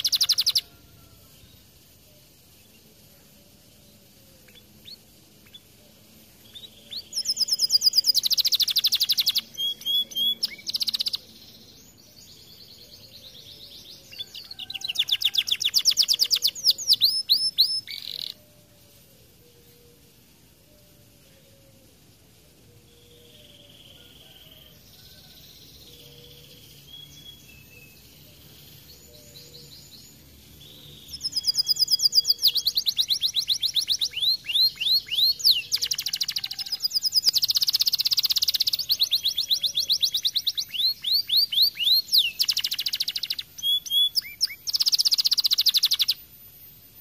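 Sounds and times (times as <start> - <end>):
canary singing: 0.0 - 2.8, 3.5 - 21.6, 22.8 - 47.0.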